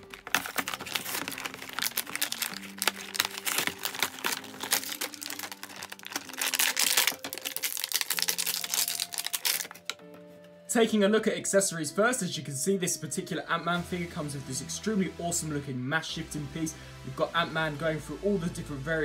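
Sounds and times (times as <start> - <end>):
cardboard tearing: 0.0 - 10.0
plastic packaging crinkling: 0.0 - 10.0
quiet background music: 0.0 - 19.0.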